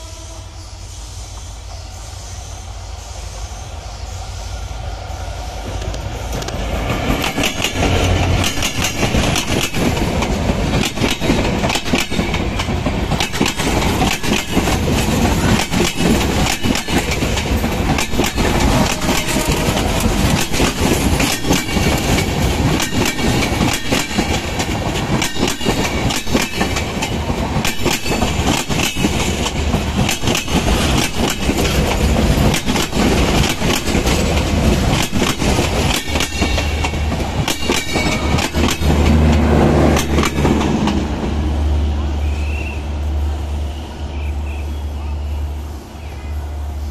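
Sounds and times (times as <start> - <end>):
low train rumble: 0.0 - 46.9
train wheels clattering: 5.6 - 41.4.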